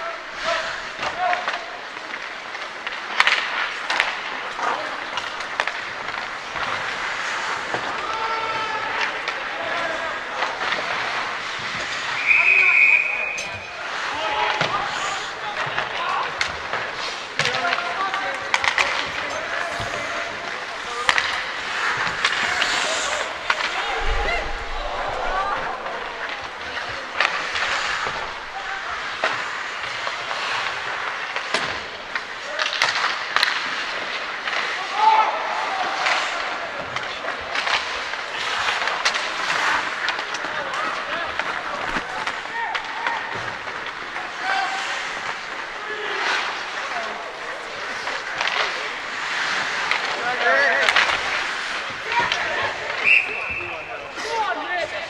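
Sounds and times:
skate blades scraping ice: 0.1s - 55.0s
sticks clacking on puck: 0.4s - 12.6s, 13.4s - 53.6s.

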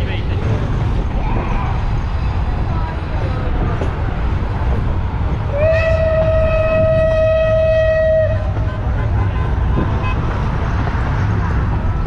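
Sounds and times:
train rumbling: 0.0s - 12.0s
steam locomotive whistle: 5.5s - 8.8s.

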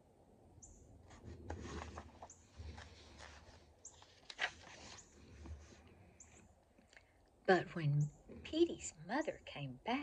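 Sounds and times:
paper page rustling: 1.1s - 6.0s
page snapping: 4.2s - 4.8s.

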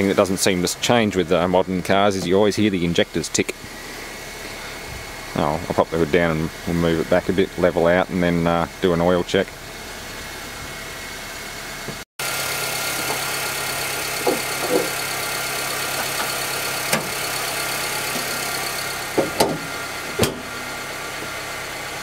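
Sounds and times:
car engine idling: 0.0s - 22.0s
fuel injectors ticking: 12.2s - 20.4s.

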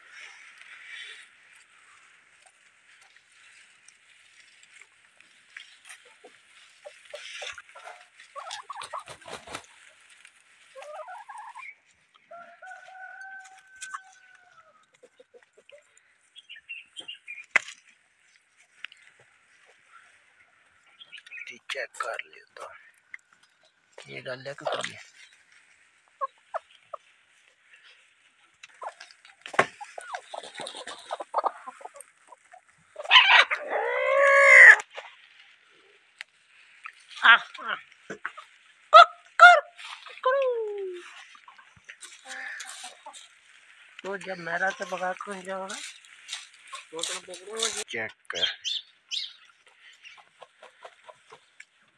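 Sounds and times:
chickens clucking: 0.0s - 51.9s
rooster crowing: 12.3s - 14.8s.

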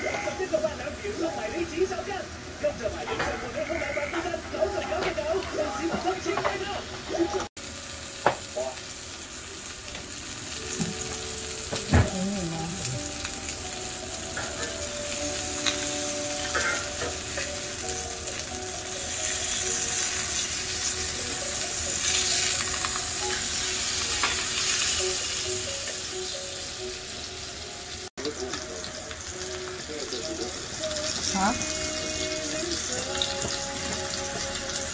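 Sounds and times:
food sizzling on griddle: 0.0s - 34.9s.

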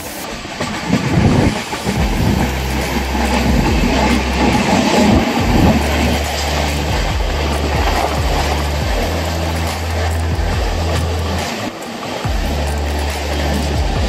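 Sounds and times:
passenger train running past: 0.0s - 14.0s
steady low hum: 0.0s - 14.0s.

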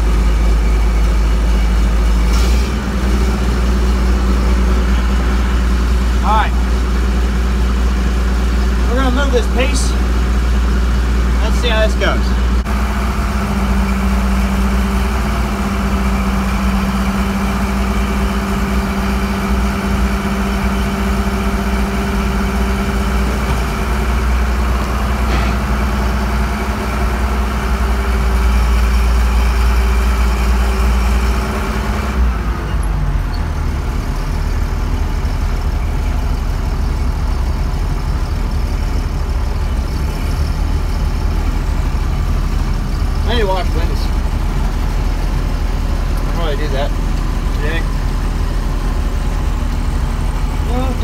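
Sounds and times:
combine harvester engine hum: 0.0s - 51.0s
low rumble: 22.2s - 29.0s.

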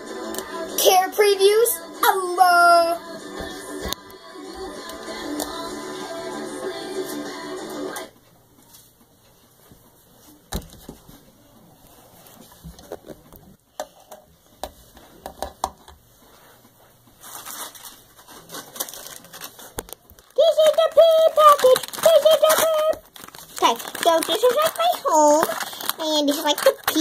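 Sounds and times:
plastic packaging crinkling: 17.2s - 27.0s.

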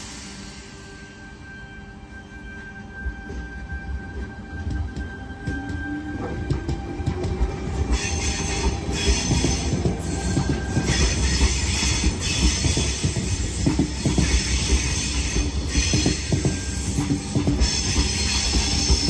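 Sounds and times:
high hiss and squeal: 0.0s - 3.8s
train low rumble: 0.0s - 19.0s
electric train wheels clacking: 3.0s - 19.0s.

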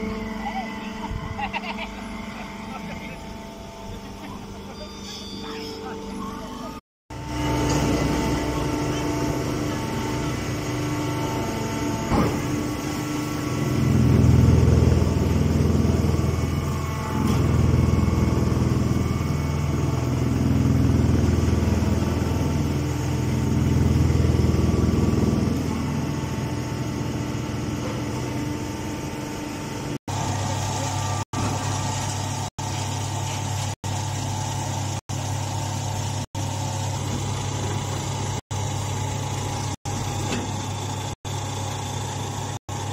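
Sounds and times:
hay baler machine hum: 0.0s - 42.9s.

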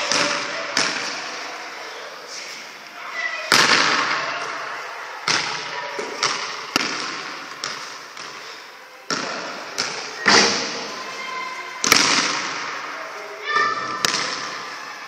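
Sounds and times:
basketball bouncing on hall floor: 0.0s - 1.2s, 3.5s - 4.2s, 5.2s - 8.5s, 9.1s - 11.0s, 11.8s - 12.9s, 13.9s - 14.7s.

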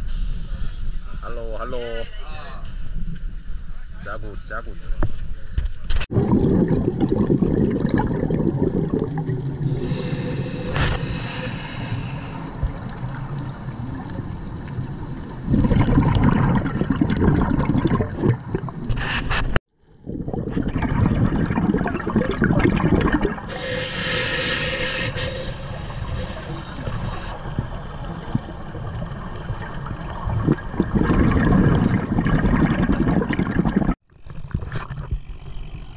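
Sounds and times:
muffled underwater rushing: 6.1s - 34.0s
scuba exhaust bubbles hissing: 6.2s - 19.3s, 20.0s - 34.0s.

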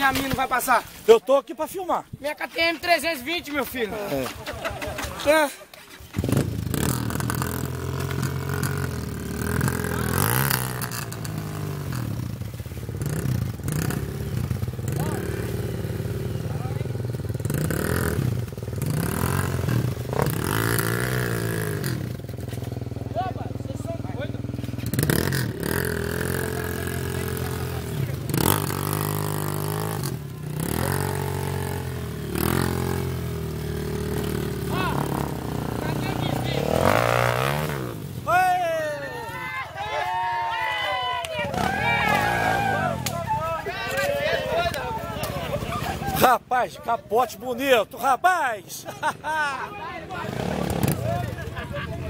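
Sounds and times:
dirt bike engine revving: 2.6s - 46.4s, 49.0s - 51.9s
rear wheel spinning in mud: 3.4s - 23.0s, 24.5s - 46.2s.

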